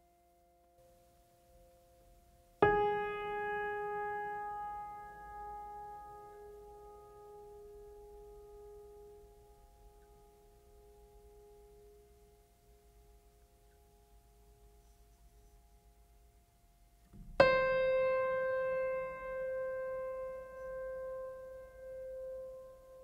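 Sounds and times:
faint held chord: 17.4 - 23.0.

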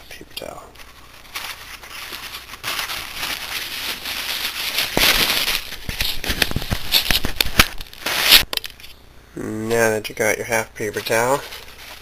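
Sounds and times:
paper towel tearing and rustling: 0.8 - 8.5, 10.9 - 12.0.

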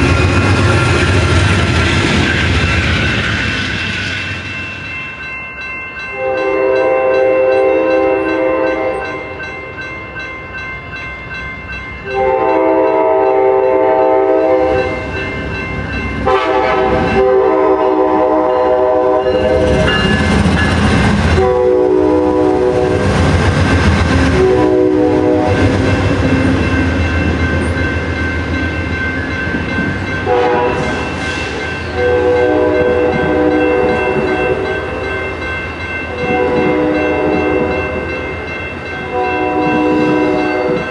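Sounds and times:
diesel locomotive rumble: 0.0 - 4.6
train wheel clatter: 0.0 - 4.9, 14.4 - 21.6
crossing bell ringing: 0.0 - 40.9
train air horn blasts: 6.2 - 9.2, 12.1 - 15.0, 16.2 - 19.8, 21.3 - 23.0, 24.2 - 25.7, 30.2 - 31.1, 31.9 - 34.8, 36.2 - 37.9, 39.1 - 40.8.

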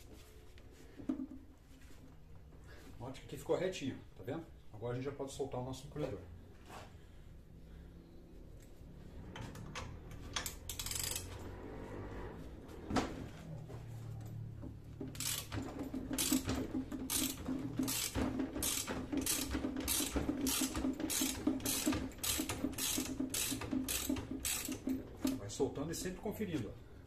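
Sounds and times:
ratchet wrench clicking: 10.4 - 11.3, 15.1 - 15.6, 16.2 - 24.9.

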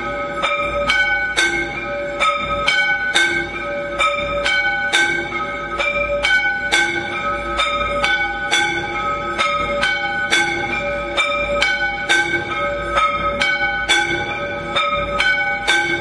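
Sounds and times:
temple bells ringing: 0.0 - 16.0.

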